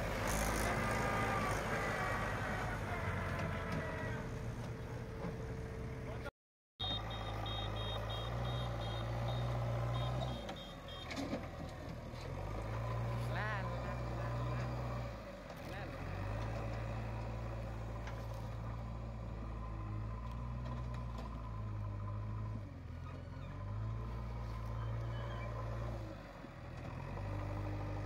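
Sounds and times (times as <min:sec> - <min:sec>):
diesel engine running: 0:00.0 - 0:28.0
reversing alarm beeping: 0:06.8 - 0:11.2.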